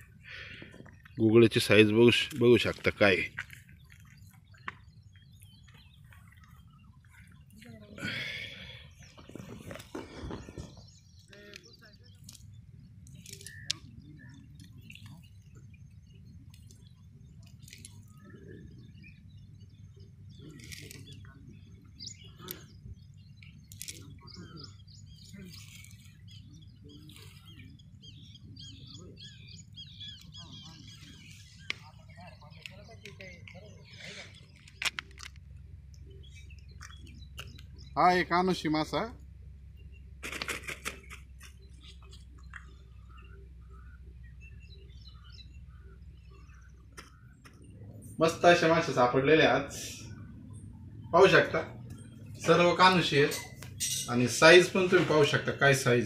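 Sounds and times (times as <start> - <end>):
small birds chirping: 0.0 - 56.0
steady low rumble: 41.2 - 55.6.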